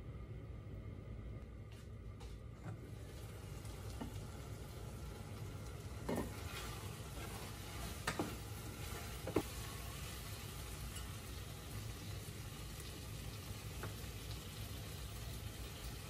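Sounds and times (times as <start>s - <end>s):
wooden spoon stirring in pot: 5.8s - 11.4s.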